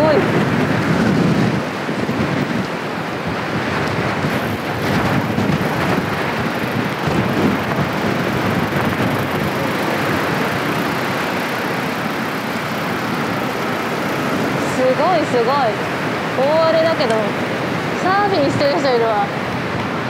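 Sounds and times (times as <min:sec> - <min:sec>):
surf breaking: 0:00.0 - 0:20.0
wind on microphone: 0:00.0 - 0:20.0.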